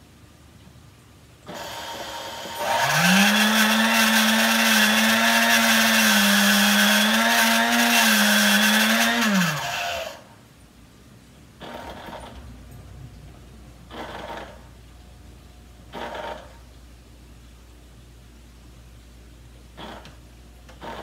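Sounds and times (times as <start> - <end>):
stand mixer motor buzzing: 1.5 - 10.2.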